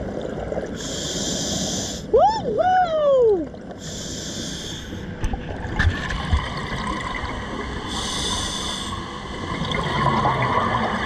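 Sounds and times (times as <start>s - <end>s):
underwater watery rush: 3.3s - 11.0s
diver breathing through regulator: 3.8s - 5.0s, 7.9s - 9.1s.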